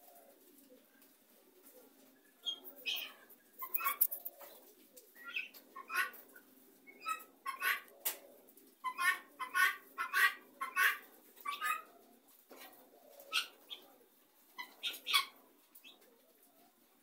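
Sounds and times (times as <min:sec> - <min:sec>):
guineafowl flock calling: 0:02.2 - 0:04.6, 0:05.2 - 0:14.0, 0:14.6 - 0:16.7.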